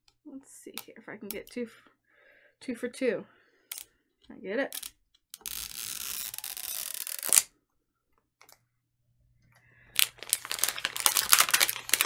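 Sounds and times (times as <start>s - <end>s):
plastic wrap tearing: 5.7s - 7.5s, 10.0s - 12.0s
plastic film crinkling: 10.0s - 12.0s.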